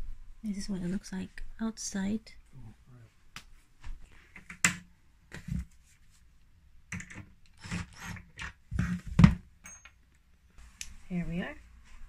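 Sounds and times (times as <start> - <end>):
cordless drill driving screws: 7.6 - 8.2.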